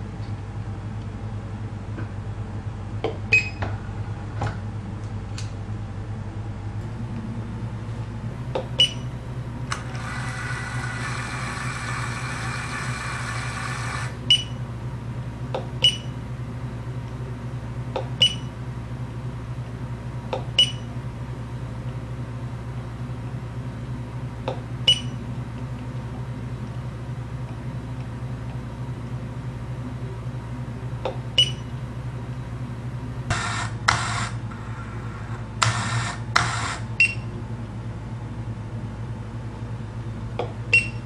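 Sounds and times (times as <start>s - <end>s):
steady low hum: 0.0s - 41.0s
drill feed motor whirring: 9.7s - 14.3s, 33.3s - 37.0s
button click-beeps: 15.8s - 16.1s, 18.2s - 18.5s, 20.6s - 20.8s, 31.4s - 31.7s.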